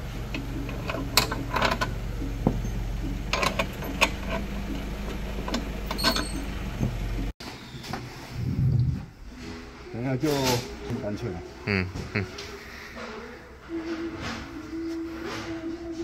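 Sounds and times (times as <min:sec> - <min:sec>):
metal clicks and clinks: 0:05.4 - 0:06.5.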